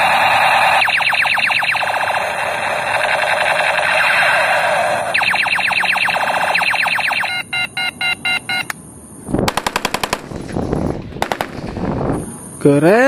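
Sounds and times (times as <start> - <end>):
toy rifle electronic beeping: 0.0 - 8.7
automatic rifle fire: 9.5 - 10.6, 11.2 - 11.8.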